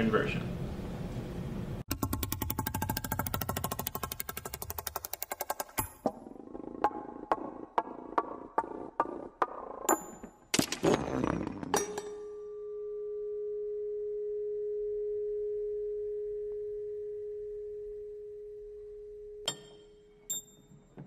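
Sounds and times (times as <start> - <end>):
ringing tone: 12.0 - 20.8.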